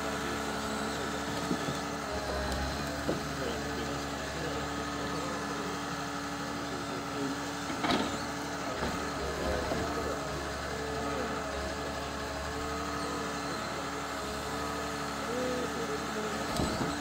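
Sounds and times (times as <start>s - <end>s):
diesel engine running: 0.0s - 17.0s
hydraulic crane working: 0.0s - 17.0s
metal clunk: 7.7s - 8.2s.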